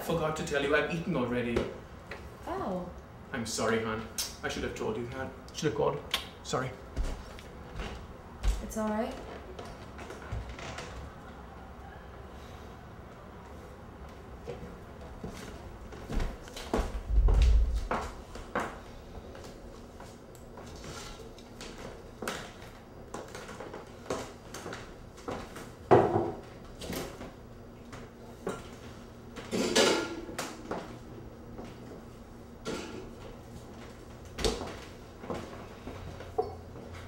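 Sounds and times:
dishes and containers clattering: 29.4s - 30.4s.

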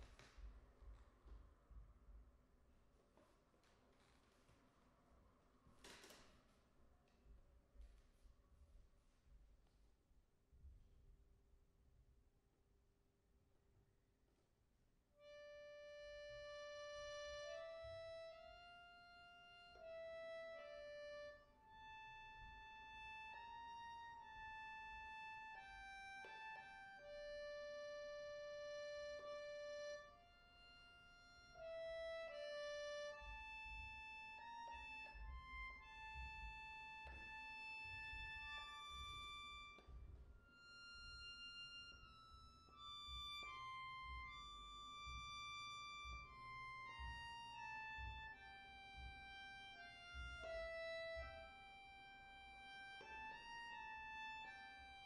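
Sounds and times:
button accordion slow melody: 15.2s - 39.9s, 40.5s - 55.0s.

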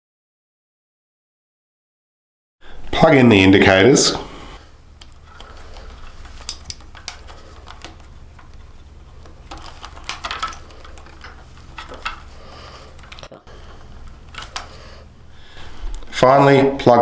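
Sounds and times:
wires rustling: 2.8s - 17.0s
small plastic clicks: 5.0s - 13.4s.

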